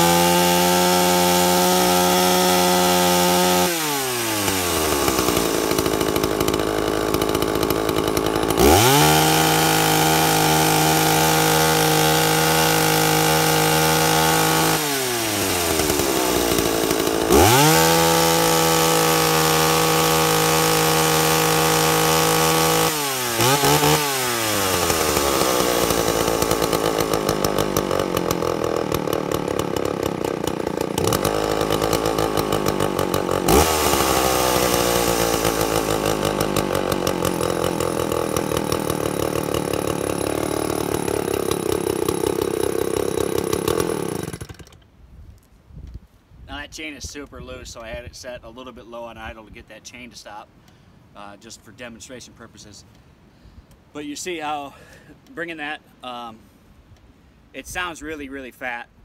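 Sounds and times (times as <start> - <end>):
chainsaw revving and idling: 0.0 - 44.8.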